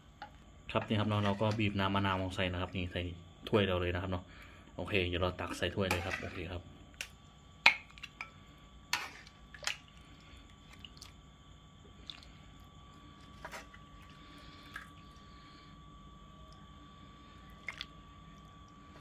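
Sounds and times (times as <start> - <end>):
liquid sloshing: 9.1 - 11.2, 11.9 - 15.4, 17.4 - 18.1.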